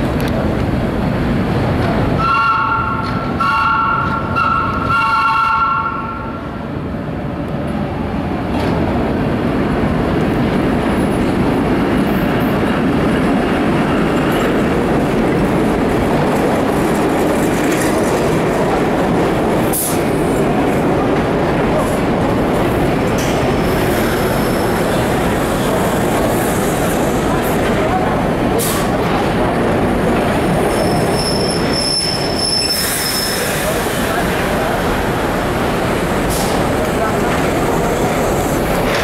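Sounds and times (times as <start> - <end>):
train rolling on rails: 0.0 - 39.0
train two-tone horn: 2.2 - 6.4.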